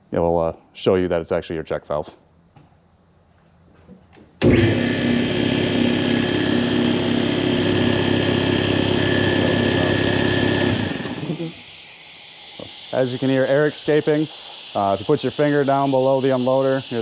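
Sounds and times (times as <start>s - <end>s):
air compressor running: 4.4s - 17.0s
air hissing: 10.7s - 17.0s.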